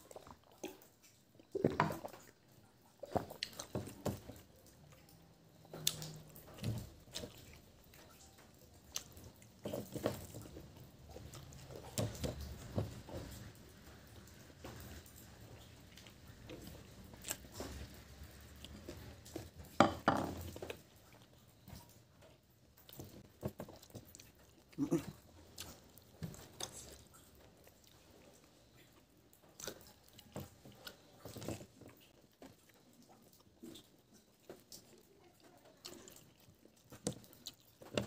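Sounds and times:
person chewing food: 0.0 - 38.0.

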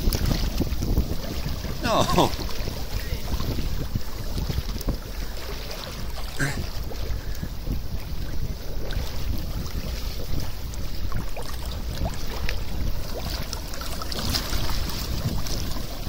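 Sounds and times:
sea water sloshing and lapping: 0.0 - 16.0
hand splashing in water: 1.8 - 2.4.

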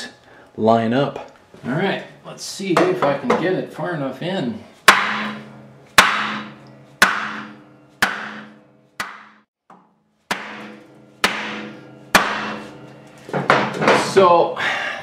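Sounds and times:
ringing hum from steel pipe: 4.7 - 9.0, 10.4 - 14.5
hammer striking metal muffler: 4.7 - 14.5.

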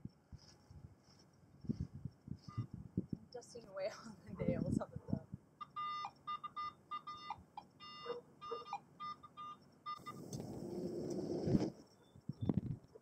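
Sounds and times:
scraping rustling noise: 0.3 - 2.6, 10.1 - 11.9
metal detector beeping: 2.4 - 2.7, 5.6 - 11.4.

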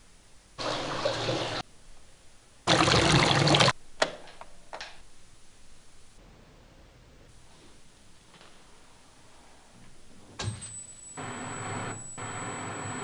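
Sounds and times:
tap water running into sink: 2.7 - 3.7.

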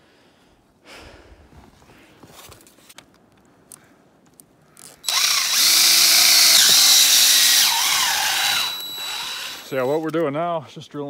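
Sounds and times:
cordless drill drilling through rubber: 5.0 - 10.2.

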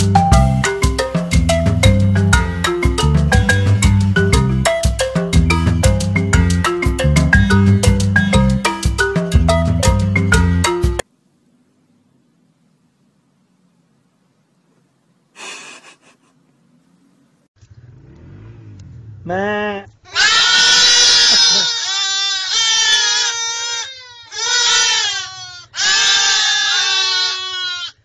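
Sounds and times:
rustle: 11.0 - 21.7
young livestock bleating: 19.2 - 28.0.

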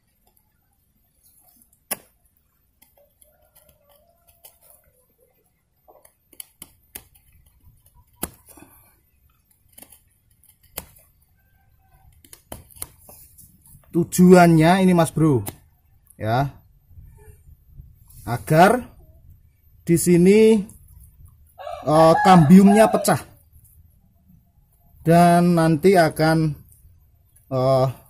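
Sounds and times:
knife scraping wood: 2.8 - 4.9, 5.9 - 11.2.

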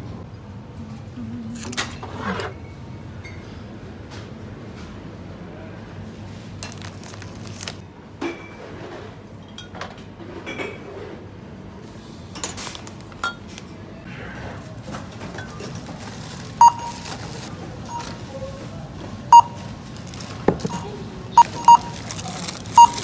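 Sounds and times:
shop background noise: 0.0 - 23.0
checkout beep: 16.5 - 23.0.

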